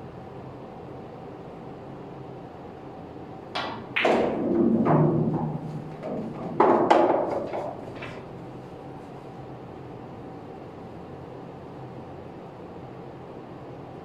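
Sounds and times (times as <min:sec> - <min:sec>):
crack of ball on ball: 0:03.6 - 0:04.7
ball rolling down ball return: 0:03.6 - 0:08.3
balls knocking together: 0:03.6 - 0:08.3.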